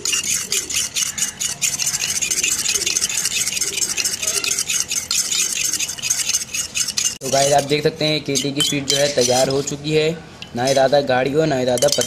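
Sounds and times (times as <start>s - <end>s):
metal spoon scraping steel bowl: 0.0s - 12.0s.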